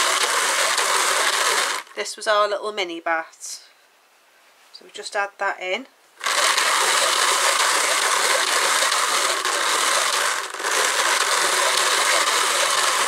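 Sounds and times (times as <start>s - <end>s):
drum carder carding wool: 0.0s - 2.0s, 6.2s - 13.0s.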